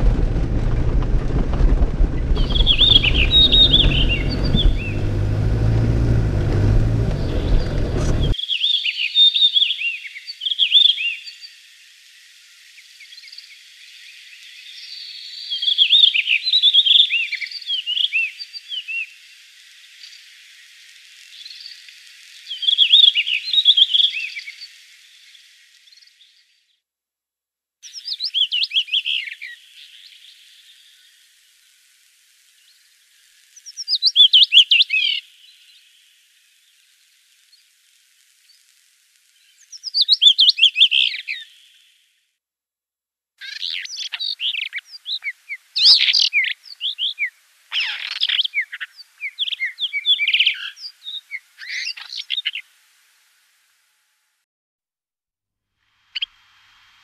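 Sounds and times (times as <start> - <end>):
low rumbling noise: 0.0 - 8.4
songbird chirping: 0.0 - 11.5.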